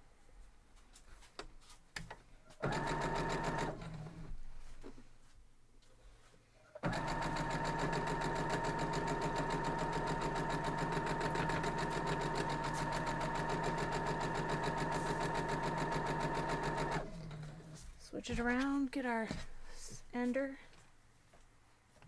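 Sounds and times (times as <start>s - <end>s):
sewing machine stitching: 2.6s - 4.3s, 6.8s - 17.8s.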